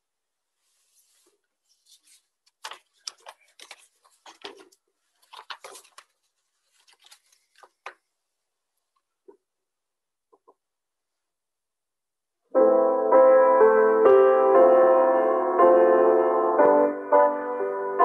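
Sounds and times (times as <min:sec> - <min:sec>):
faint rustling and clicking: 0:00.8 - 0:08.1.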